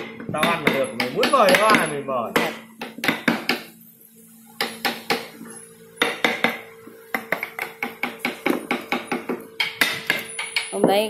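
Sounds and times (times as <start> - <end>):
mallet tapping chisel into wood: 0.0 - 3.7, 6.0 - 10.7.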